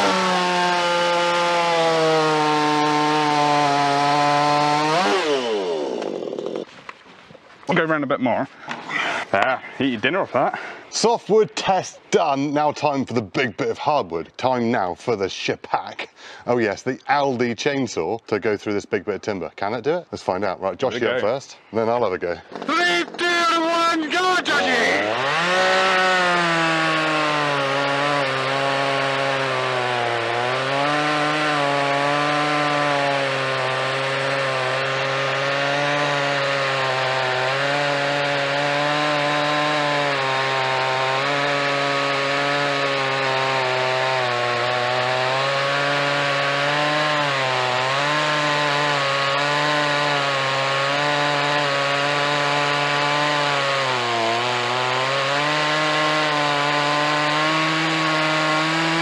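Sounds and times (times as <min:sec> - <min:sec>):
chainsaw cutting log: 0:00.0 - 0:07.8, 0:20.9 - 0:59.0.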